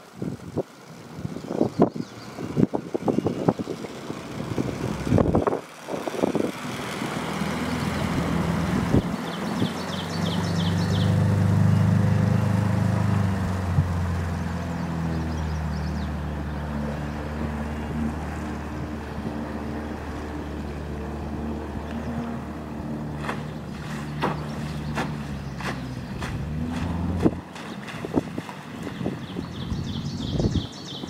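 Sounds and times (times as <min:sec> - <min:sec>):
outboard motor: 0:00.0 - 0:31.0
wind buffeting microphone: 0:00.2 - 0:11.9, 0:12.5 - 0:31.0
bird chirps: 0:09.0 - 0:11.2, 0:23.3 - 0:26.3, 0:28.9 - 0:31.0.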